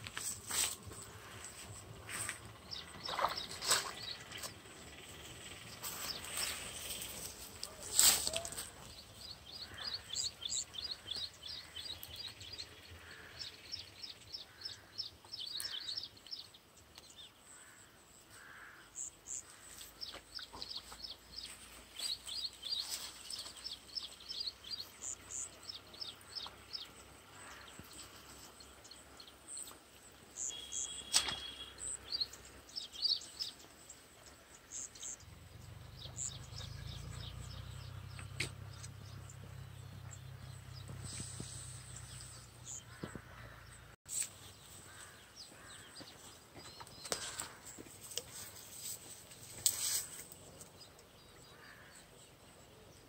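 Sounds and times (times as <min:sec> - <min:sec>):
bird chirping: 0:00.9 - 0:17.6, 0:19.0 - 0:53.0
sharp click: 0:31.1 - 0:31.5.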